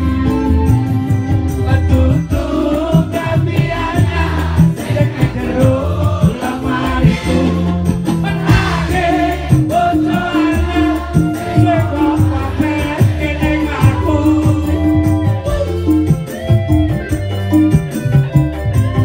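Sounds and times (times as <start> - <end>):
live band music through speakers: 0.0 - 19.0
man singing into microphone: 1.6 - 15.9
crowd singing along: 1.7 - 16.2.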